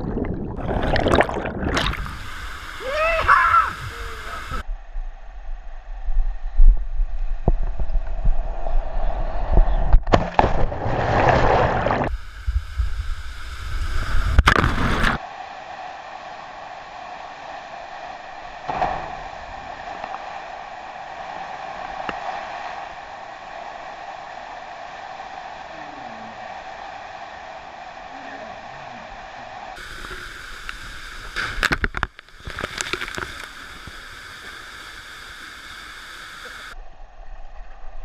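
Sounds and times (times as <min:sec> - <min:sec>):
wind rumbling: 0:00.0 - 0:34.4
waterfall rushing: 0:00.6 - 0:04.6, 0:19.3 - 0:36.8.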